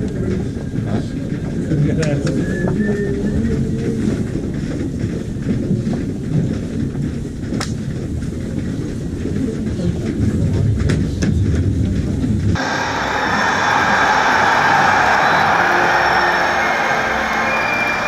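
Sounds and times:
muffled stadium crowd rumble: 8.5 - 18.0.

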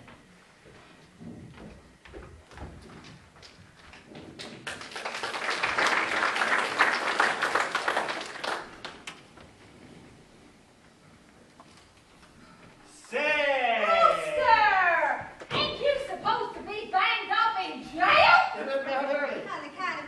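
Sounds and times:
audience applause: 4.4 - 9.1.

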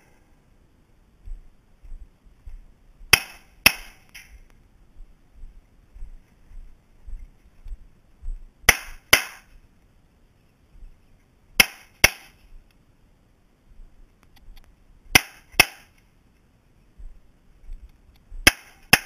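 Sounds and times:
pistol shots: 8.7 - 9.5.

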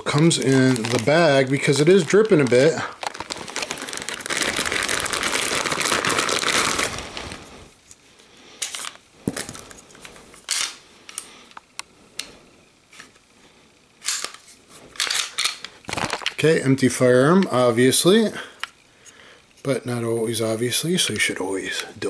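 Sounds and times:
plastic bag crinkling: 0.0 - 7.7, 14.2 - 18.3.

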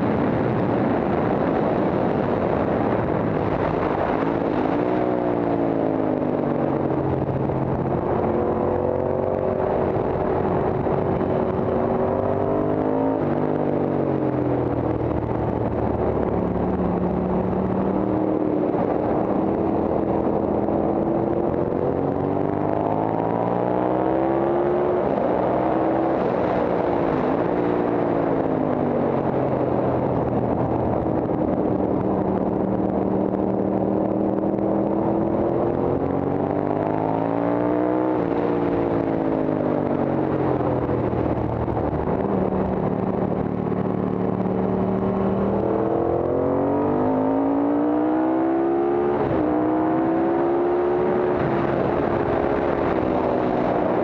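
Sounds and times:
racing motorcycle engine: 0.0 - 54.0
wind rush on microphone: 0.0 - 54.0.

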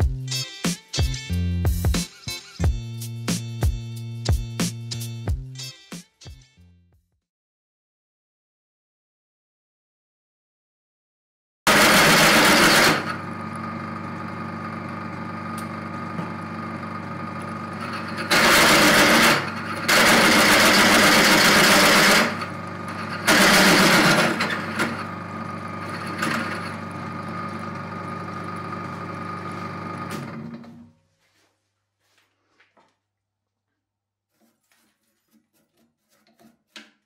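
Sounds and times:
drill bit cutting metal: 11.7 - 13.3, 17.7 - 25.2
drill press motor humming: 11.7 - 30.9.

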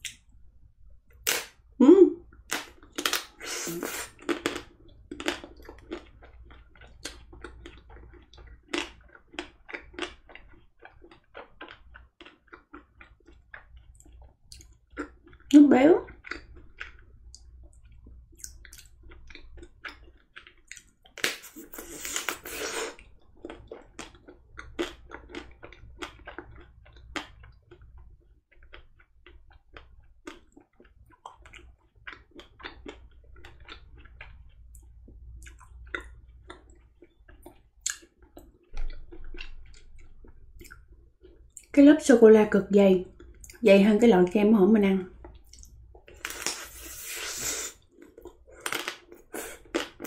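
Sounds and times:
chewing and crunching: 2.4 - 41.8, 45.1 - 50.0
wet mouth clicks: 37.3 - 39.9, 45.4 - 50.0.

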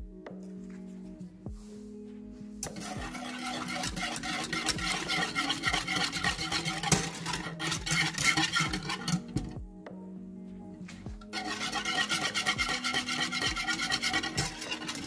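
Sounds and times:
background music: 0.0 - 15.0
whisk scraping a saucepan: 2.7 - 9.6, 11.3 - 15.0.

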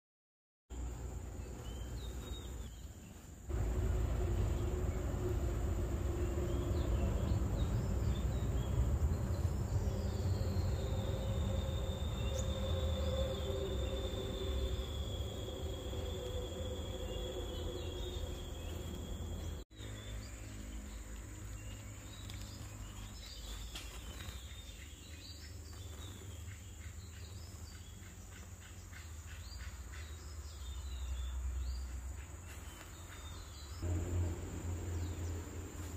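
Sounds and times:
low rumble on microphone: 3.5 - 19.6
high-pitched insect drone: 9.4 - 19.6.

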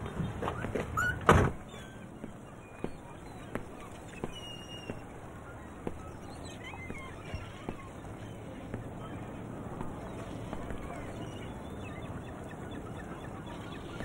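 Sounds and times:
footsteps on pavement: 0.1 - 1.1, 2.1 - 11.4.

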